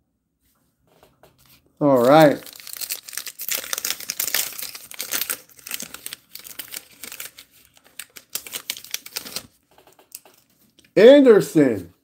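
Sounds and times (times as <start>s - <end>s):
paper wrapper tearing and crinkling: 1.8s - 10.5s.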